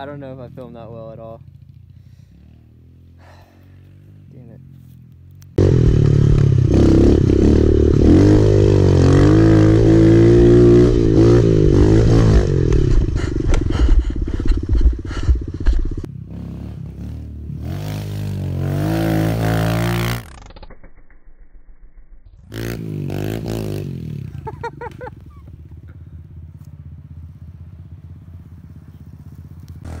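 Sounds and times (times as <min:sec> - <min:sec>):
dirt bike engine revving: 0:05.6 - 0:20.8, 0:22.4 - 0:26.0.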